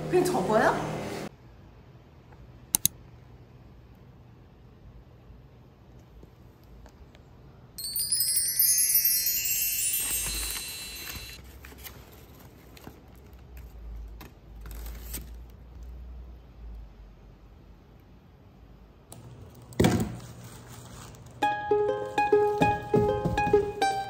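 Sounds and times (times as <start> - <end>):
bar chimes: 7.8 - 11.4
paper wrapping rustling: 9.6 - 15.5, 19.2 - 21.4.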